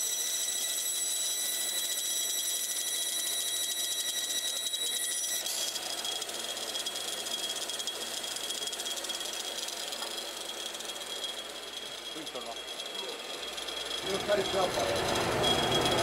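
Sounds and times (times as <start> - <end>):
bandsaw cutting wood: 7.7 - 16.0.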